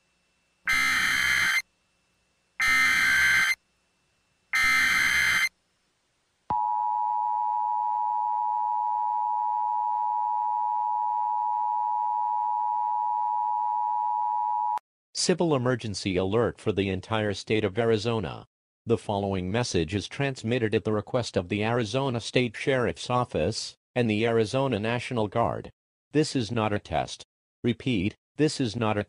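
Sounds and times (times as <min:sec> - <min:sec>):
two-tone attention signal: 0:00.7 - 0:01.6, 0:02.6 - 0:03.6, 0:04.6 - 0:05.5
digital data bursts: 0:04.6 - 0:05.5.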